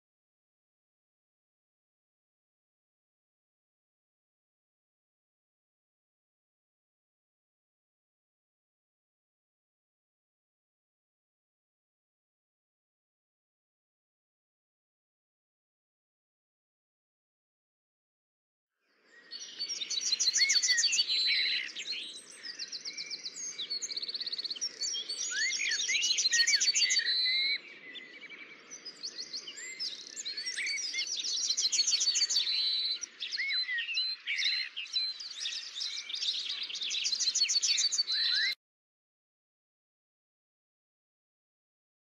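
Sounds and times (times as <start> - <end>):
songbirds singing and chirping: 18.8 - 38.6.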